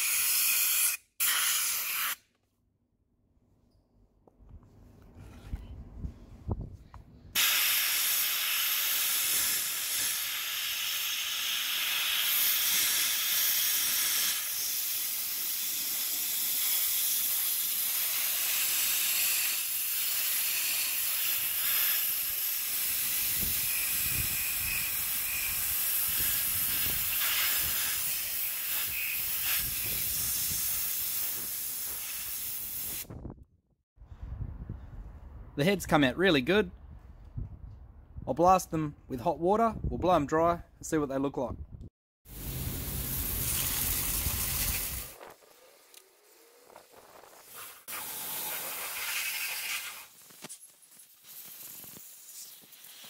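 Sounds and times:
air blast gun hissing: 7.4s - 33.1s, 42.3s - 45.2s.

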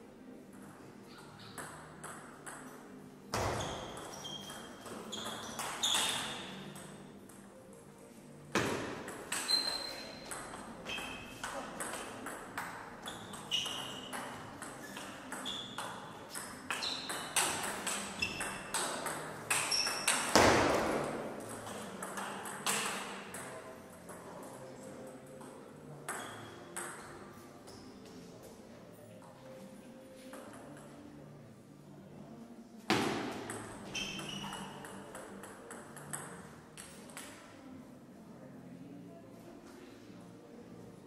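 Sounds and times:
shoes squeaking: 3.3s - 6.8s, 9.3s - 11.6s, 13.0s - 20.4s, 33.8s - 35.0s.

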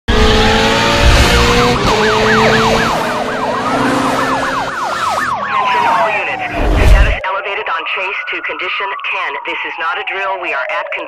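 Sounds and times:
car engine running: 0.1s - 7.2s
slow siren wail: 0.1s - 11.0s
police siren yelp: 0.3s - 11.0s.

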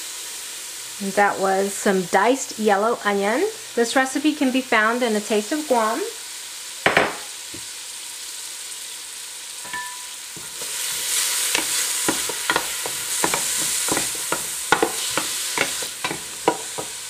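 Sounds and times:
onion sizzling in oil: 0.0s - 17.0s
wooden spoon clicking on pot: 11.5s - 17.0s.

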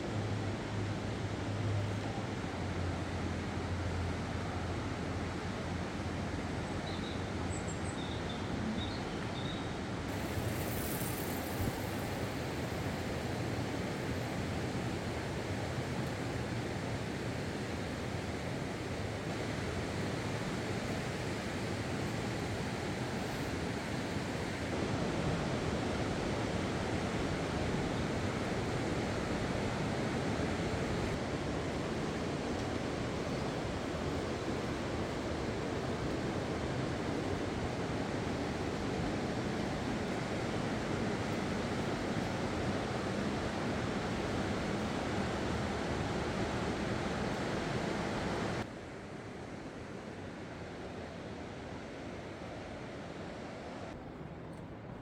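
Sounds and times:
rushing outdoor ambience: 0.0s - 55.0s
steady rushing noise: 10.1s - 15.8s.

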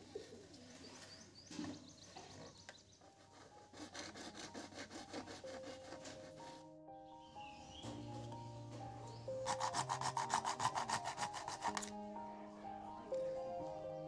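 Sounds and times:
soft background music: 0.7s - 14.0s
hacksaw sawing plastic pipe: 3.2s - 6.5s, 9.4s - 11.9s.

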